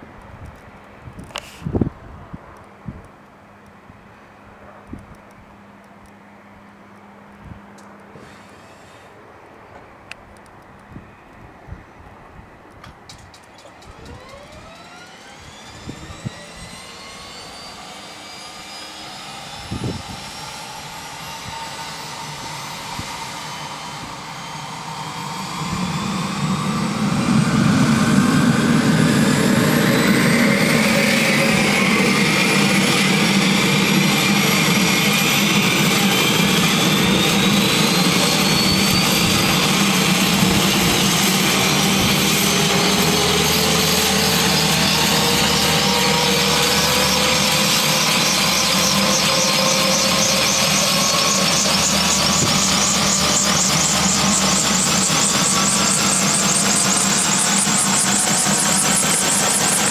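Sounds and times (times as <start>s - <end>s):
turbine engine whine rising: 7.1s - 10.1s, 13.1s - 59.9s
heavy low rumble: 24.9s - 58.0s.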